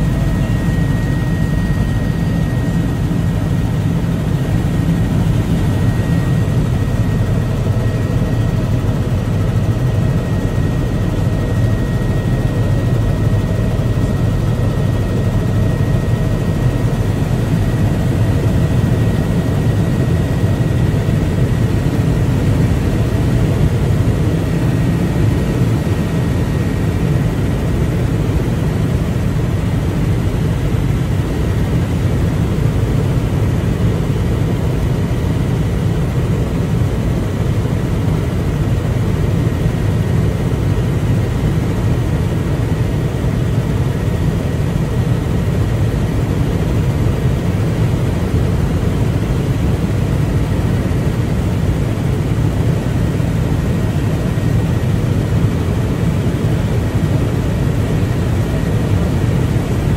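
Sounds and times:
faint high whine: 0.0s - 32.0s
aircraft engine drone: 0.0s - 59.9s.

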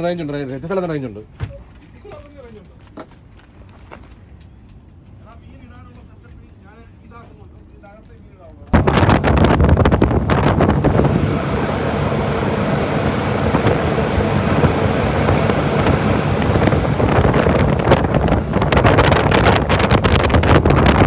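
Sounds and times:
boat engine drone: 8.8s - 21.0s
rushing wake water: 8.8s - 21.0s
wind on microphone: 8.8s - 21.0s.

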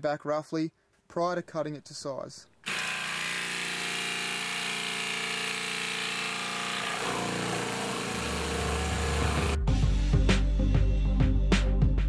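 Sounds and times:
sander running: 2.6s - 9.6s.

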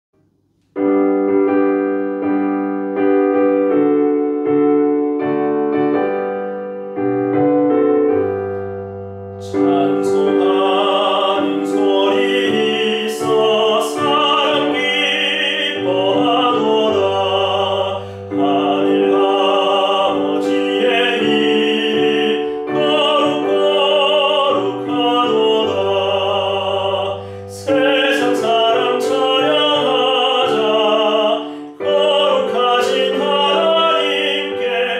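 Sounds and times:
piano accompaniment: 0.2s - 34.9s
man singing a hymn: 9.4s - 34.9s.

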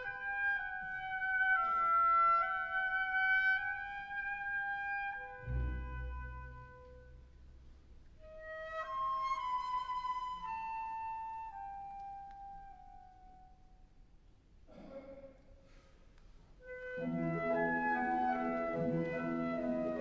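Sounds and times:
solo flute melody: 0.0s - 7.3s, 8.2s - 13.6s, 16.6s - 20.0s
hushed orchestra: 0.1s - 7.4s, 16.6s - 20.0s.

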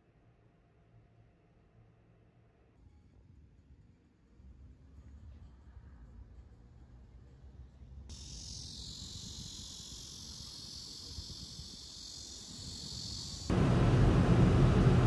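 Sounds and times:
high-pitched insect chorus: 8.1s - 13.5s
loud rushing noise: 13.5s - 15.0s.

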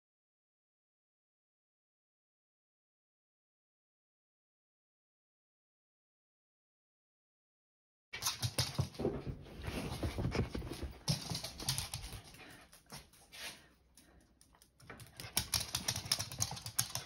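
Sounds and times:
dog claws clicking on hard floor: 8.2s - 9.3s, 9.9s - 13.2s, 14.0s - 17.0s.

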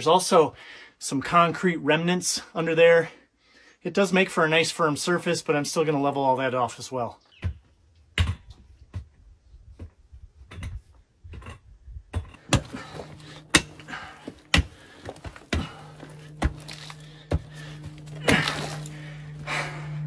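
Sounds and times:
shovel digging into dirt: 12.4s - 19.1s
held low note: 12.4s - 20.0s
slow-beat background music: 12.5s - 20.0s.

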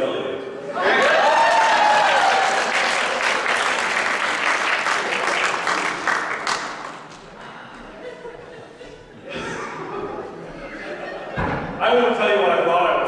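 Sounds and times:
audience applauding: 0.9s - 7.5s.

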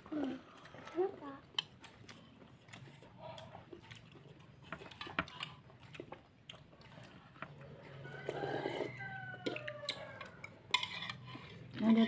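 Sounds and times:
people chewing food: 0.0s - 12.0s
rooster crowing: 7.9s - 10.6s.

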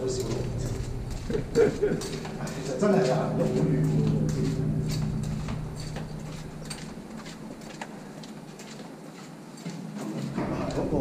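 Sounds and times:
low drone: 0.0s - 8.7s
footsteps on concrete: 0.2s - 10.4s.

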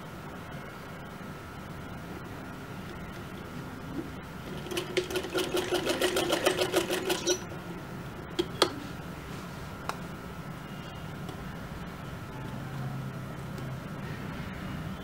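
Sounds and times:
sewing machine stitching: 4.4s - 7.5s.

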